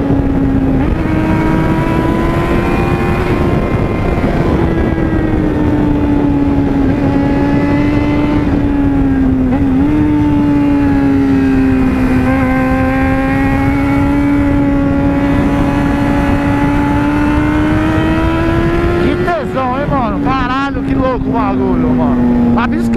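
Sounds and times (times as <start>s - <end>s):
motorcycle engine cruising: 0.0s - 22.9s
wind over microphone: 0.0s - 22.9s.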